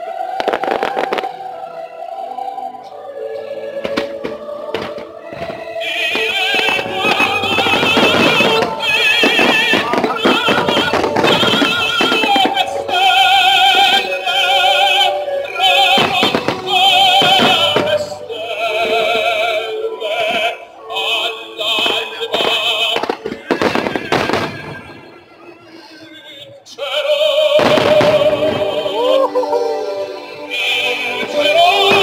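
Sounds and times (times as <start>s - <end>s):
operatic voice singing: 0.0s - 32.0s
show music: 0.0s - 32.0s
firework shells bursting: 0.4s - 1.4s, 6.2s - 13.2s.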